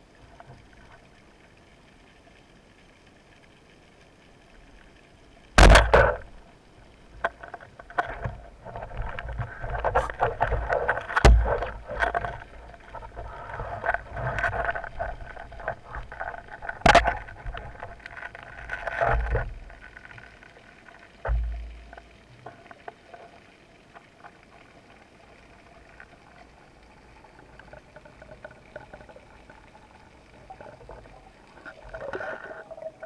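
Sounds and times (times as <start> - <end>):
line hauling clicks and scraping: 7.2 - 20.6.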